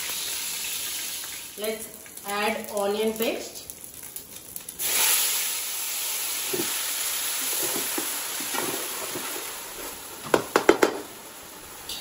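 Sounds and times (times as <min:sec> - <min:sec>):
paste sizzling in hot oil: 0:03.6 - 0:12.0
spoon knocking against pot: 0:10.3 - 0:11.1.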